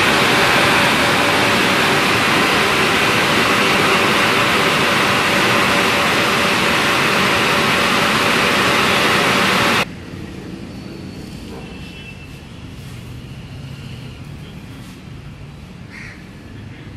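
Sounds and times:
car wash machinery rushing: 0:00.0 - 0:09.9.

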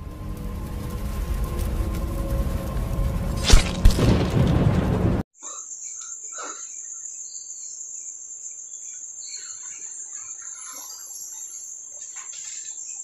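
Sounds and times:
crickets trilling: 0:05.4 - 0:13.0.

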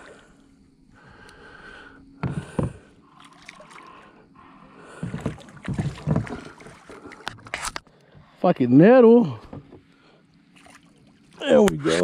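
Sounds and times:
knocks on boat side: 0:02.2 - 0:02.8
water splashing: 0:03.0 - 0:04.1, 0:04.8 - 0:07.7, 0:10.5 - 0:11.8.

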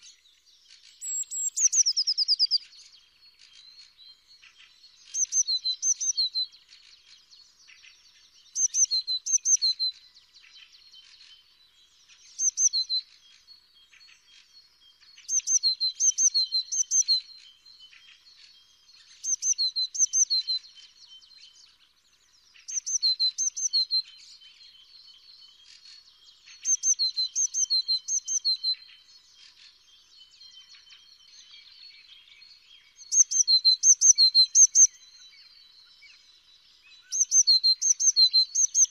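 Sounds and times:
faint bird chirps: 0:00.0 - 0:38.9
bird singing high repeated notes: 0:00.9 - 0:02.6, 0:08.5 - 0:09.9, 0:12.4 - 0:13.1, 0:15.2 - 0:17.3, 0:19.2 - 0:20.9, 0:26.4 - 0:38.9.

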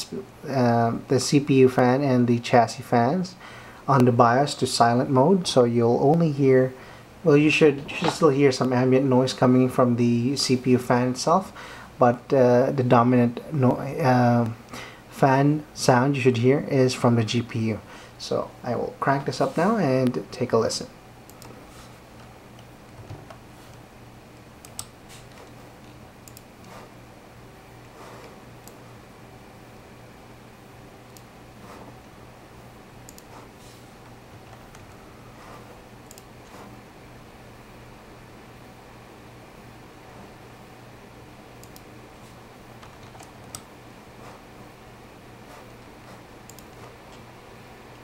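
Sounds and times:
ambient computer fan noise: 0:00.0 - 0:48.0
cooling fan humming: 0:00.0 - 0:48.0
light computer input clicks: 0:36.1 - 0:36.3, 0:41.6 - 0:41.9, 0:46.5 - 0:47.2
keyboard and mouse clicks: 0:36.1 - 0:36.6, 0:41.6 - 0:41.9, 0:42.8 - 0:44.4, 0:46.5 - 0:47.2.

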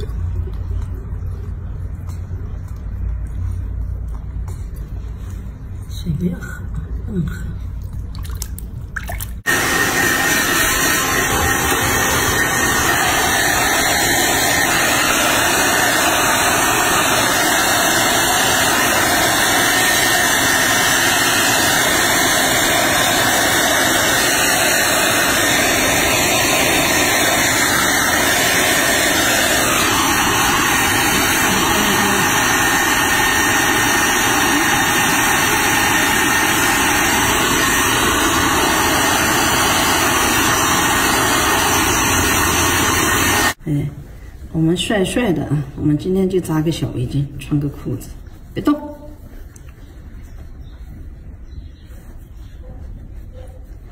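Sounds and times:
hair dryer blowing: 0:09.4 - 0:43.6.

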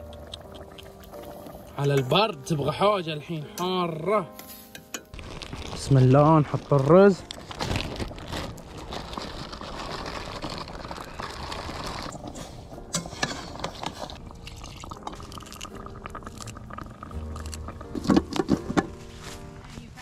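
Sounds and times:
light ticks and crackles: 0:00.0 - 0:02.1
rice pouring into a pot: 0:05.2 - 0:12.2.

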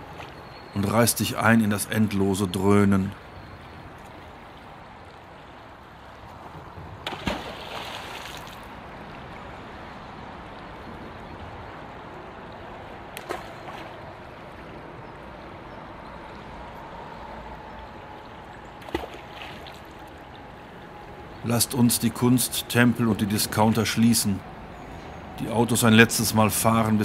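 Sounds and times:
road traffic drone: 0:08.7 - 0:27.0.

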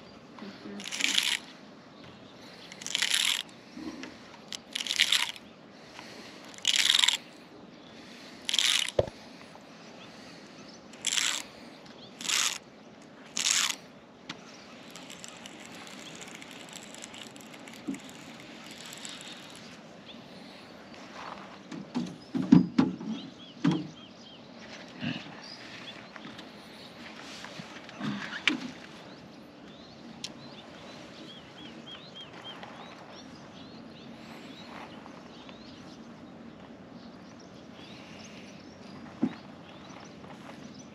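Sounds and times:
fishing line zipping off reel: 0:00.8 - 0:01.5, 0:02.7 - 0:03.5, 0:04.5 - 0:05.4, 0:06.5 - 0:07.2, 0:08.5 - 0:09.0, 0:11.0 - 0:11.5, 0:12.2 - 0:12.6, 0:13.3 - 0:13.8, 0:14.8 - 0:19.8.

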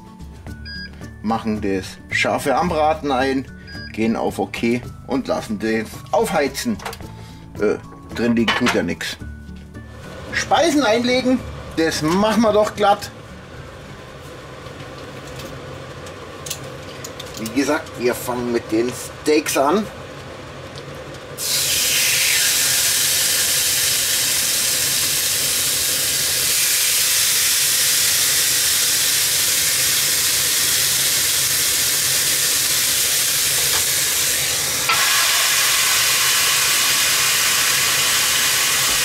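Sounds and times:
meat sizzling on grill: 0:21.4 - 0:39.0.

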